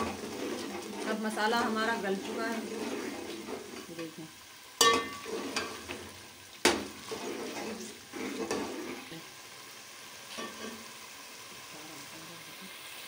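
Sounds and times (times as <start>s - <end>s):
spoon scraping metal pot: 0.0s - 4.2s, 4.8s - 6.0s, 7.0s - 9.2s
curry sizzling in a pot: 0.0s - 13.0s.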